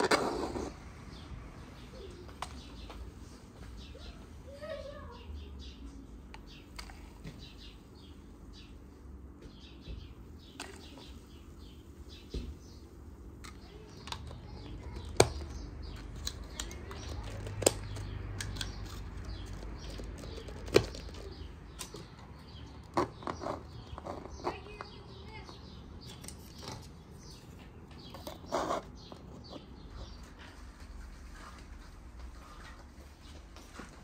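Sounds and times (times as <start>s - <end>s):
plastic cups clicking and knocking: 13.4s - 25.0s.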